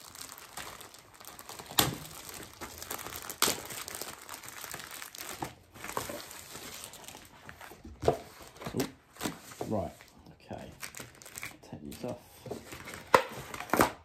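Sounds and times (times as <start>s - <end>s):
plastic wrap crinkling: 0.0s - 13.8s
sharp plastic cracks: 0.5s - 5.6s.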